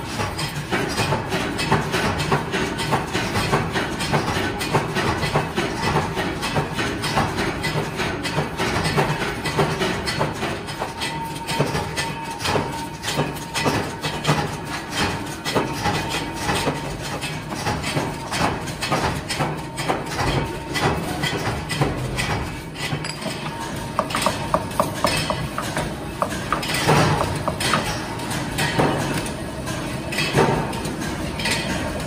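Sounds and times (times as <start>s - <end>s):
workshop machinery humming: 0.0s - 32.0s
metallic clinks and knocks: 14.9s - 29.2s.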